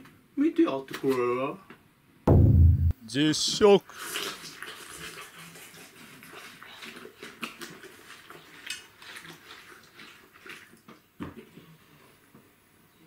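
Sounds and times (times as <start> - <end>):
person chewing watermelon: 6.2 - 10.8.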